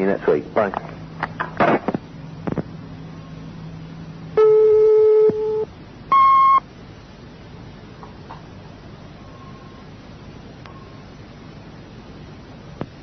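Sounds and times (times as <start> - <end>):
recording hiss and hum: 0.0 - 13.0
answering machine beeps: 4.4 - 6.6.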